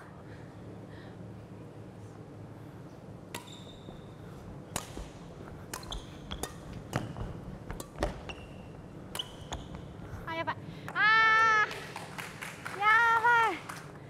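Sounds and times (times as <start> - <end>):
racket hitting shuttlecock: 3.2 - 9.9
sneakers squeaking on court: 5.8 - 9.9.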